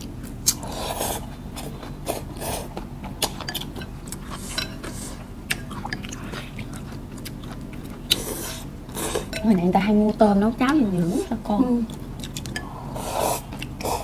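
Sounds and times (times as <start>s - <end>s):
chewing and slurping noodles: 0.4s - 9.4s
chopsticks clicking against bowls: 11.8s - 12.7s.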